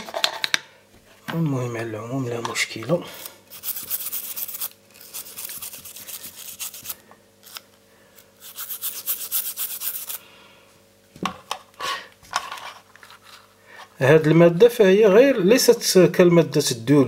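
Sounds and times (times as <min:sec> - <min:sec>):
toothbrush scrubbing: 0:03.5 - 0:07.6, 0:08.4 - 0:10.2.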